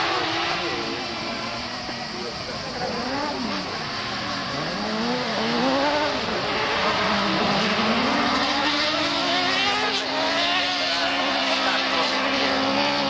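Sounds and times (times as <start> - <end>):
racing engines revving: 0.0 - 13.0.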